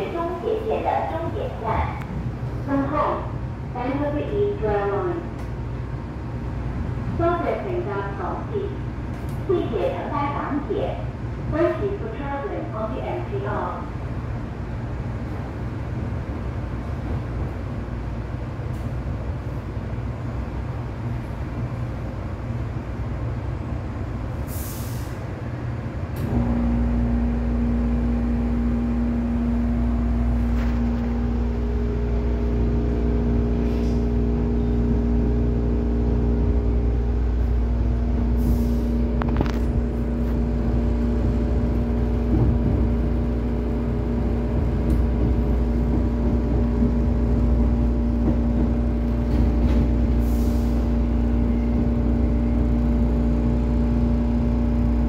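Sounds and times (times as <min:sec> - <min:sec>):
train low rumble: 0:00.0 - 0:55.0
air hisses: 0:24.5 - 0:25.2.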